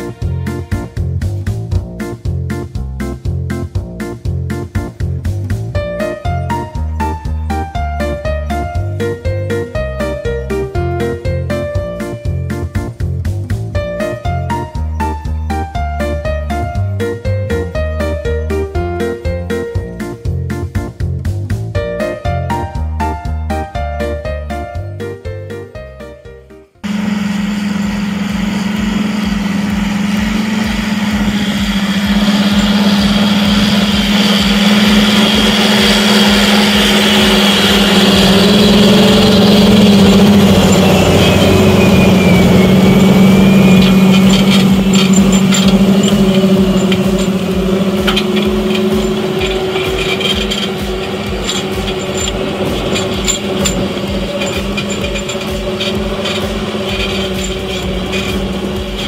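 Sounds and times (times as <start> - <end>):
tractor diesel engine roaring: 26.8 - 59.0
turbo whine: 26.8 - 59.0.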